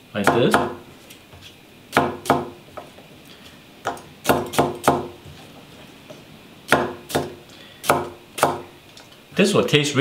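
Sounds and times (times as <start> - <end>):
cleaver chopping on wooden block: 0.2 - 0.8, 1.9 - 2.6, 3.9 - 5.1, 6.7 - 8.7.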